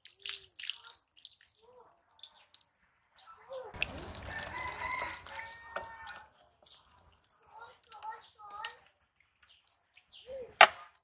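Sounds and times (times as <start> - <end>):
water splashing onto steel plate: 0.0 - 2.8, 3.7 - 10.0
rooster crowing: 3.8 - 6.4.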